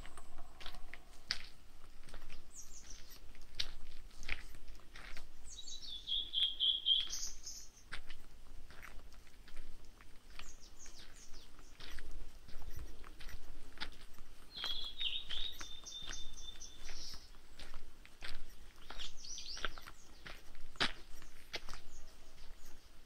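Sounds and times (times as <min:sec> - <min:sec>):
songbird singing: 0:00.0 - 0:03.8, 0:04.5 - 0:08.0, 0:10.1 - 0:23.0
footsteps crunching on dirt: 0:00.0 - 0:23.0
high bird chirps: 0:05.5 - 0:07.8, 0:14.5 - 0:17.3, 0:18.8 - 0:20.4.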